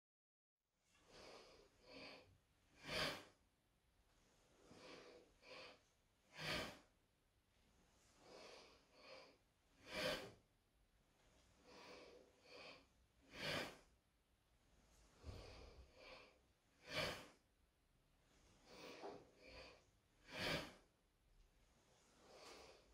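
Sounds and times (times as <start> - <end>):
person breathing: 1.0 - 3.4, 4.5 - 7.0, 8.1 - 10.4, 11.5 - 14.0, 15.1 - 17.4, 18.5 - 20.9, 21.9 - 22.9
sharp exhale: 2.8 - 3.4, 4.7 - 6.9, 9.8 - 10.4, 11.8 - 13.9, 15.2 - 17.4, 18.7 - 20.9.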